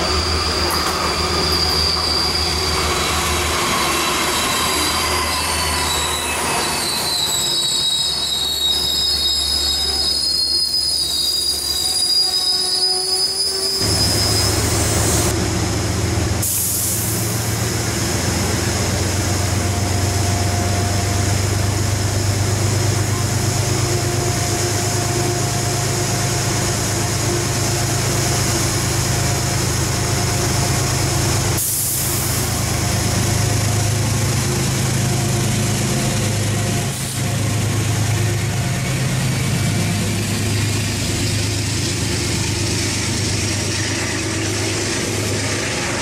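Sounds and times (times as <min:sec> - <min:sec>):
train wheel and brake squeal: 0:00.0 - 0:15.4, 0:19.4 - 0:46.0
train low rumble: 0:00.0 - 0:46.0
diesel engine running: 0:14.6 - 0:46.0.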